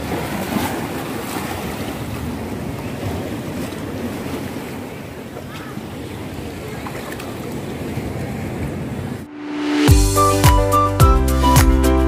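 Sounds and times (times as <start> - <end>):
water lapping among rocks: 0.0 - 8.9.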